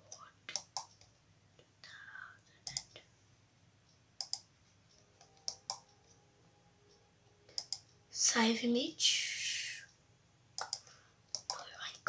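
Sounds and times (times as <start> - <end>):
computer mouse clicks: 0.1 - 1.2, 2.6 - 3.0, 3.9 - 6.2, 7.5 - 8.0, 10.6 - 12.0.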